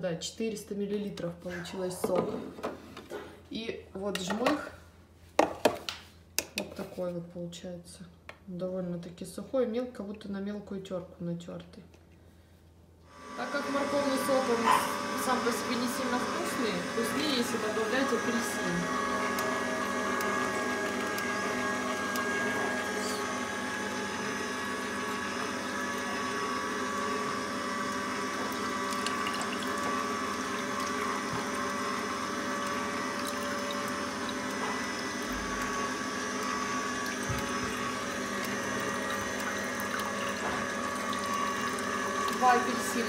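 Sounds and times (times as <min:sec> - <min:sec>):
juicer motor hum: 0:13.1 - 0:43.0.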